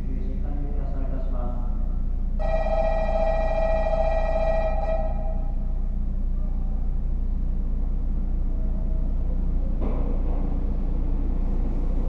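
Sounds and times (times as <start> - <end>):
electronic platform bell ringing: 2.4 - 5.6.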